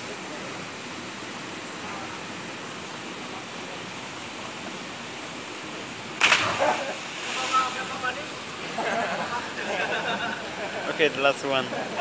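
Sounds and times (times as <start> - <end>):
rushing water background: 0.0 - 12.0
loud splash into water: 6.2 - 8.1.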